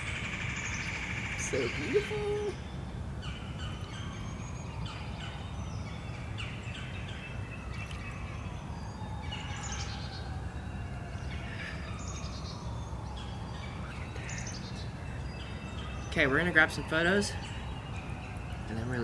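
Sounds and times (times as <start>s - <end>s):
birds singing and chirping: 0.0s - 19.0s.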